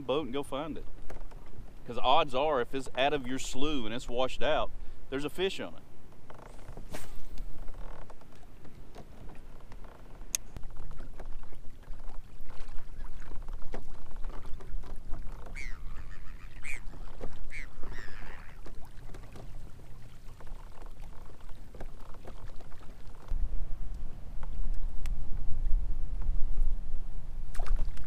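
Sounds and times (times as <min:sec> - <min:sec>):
wind rumble on microphone: 0:05.9 - 0:28.0
gulls calling: 0:14.5 - 0:20.1.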